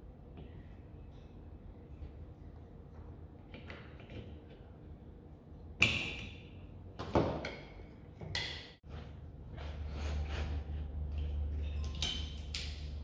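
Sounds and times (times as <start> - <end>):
sharp clacks of hard objects: 11.8 - 13.0.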